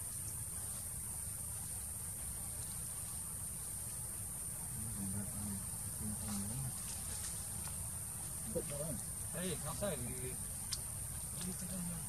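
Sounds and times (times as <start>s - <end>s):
high-pitched insect hiss: 0.0s - 12.0s.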